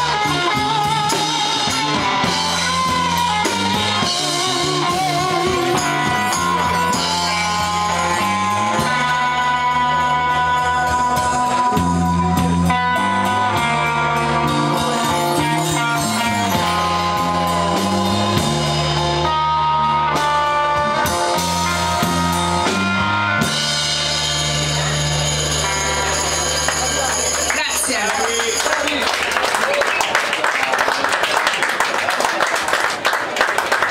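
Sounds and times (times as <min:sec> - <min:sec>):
drum kit with cymbals: 0:00.0 - 0:29.0
bass guitar: 0:00.0 - 0:29.4
electric guitar: 0:00.0 - 0:30.0.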